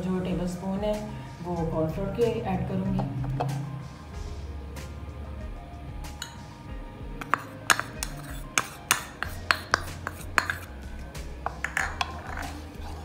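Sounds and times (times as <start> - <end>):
metal spoon clinking bowl: 6.2 - 6.4, 7.2 - 13.0.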